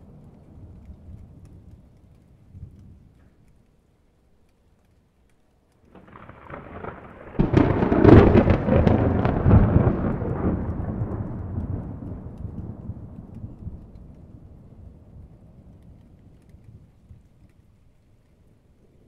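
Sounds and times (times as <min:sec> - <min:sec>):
rolling thunder with sharp crack: 0:06.0 - 0:16.5.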